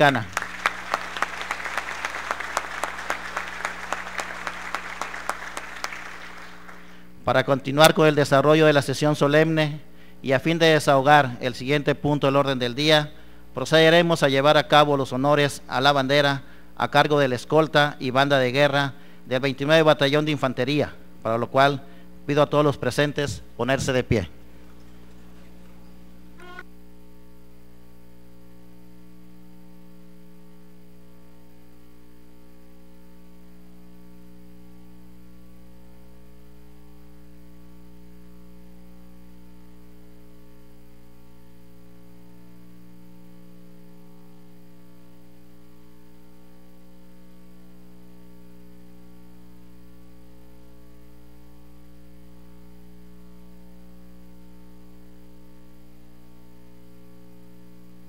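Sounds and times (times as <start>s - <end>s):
electrical mains hum: 0.0s - 58.0s.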